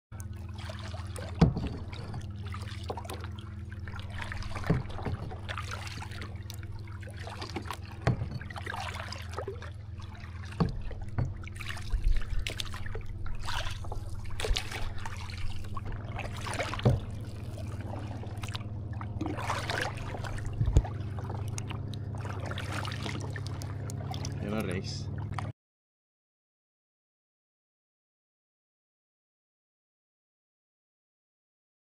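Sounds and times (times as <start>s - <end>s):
paddle splashing in water: 0.2s - 25.5s
steady low hum: 0.2s - 25.5s.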